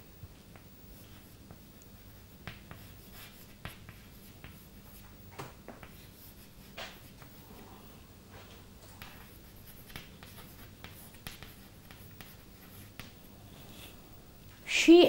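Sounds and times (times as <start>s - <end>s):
low steady hum: 0.0s - 15.0s
chalk scratching on blackboard: 0.9s - 5.2s, 5.8s - 7.6s, 9.0s - 13.9s.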